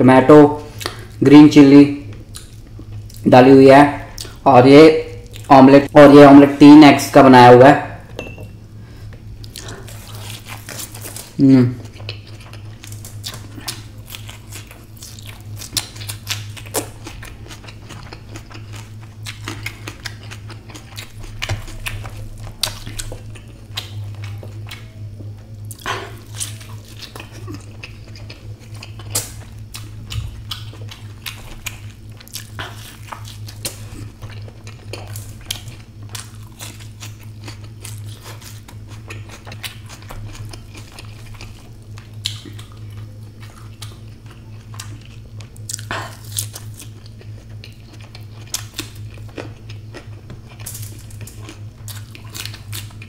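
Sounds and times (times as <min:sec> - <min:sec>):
steady low hum: 0:00.0 - 0:53.0
person chewing with mouth clicks: 0:00.6 - 0:01.2, 0:02.1 - 0:03.3, 0:04.1 - 0:04.4, 0:05.2 - 0:05.6, 0:09.1 - 0:53.0.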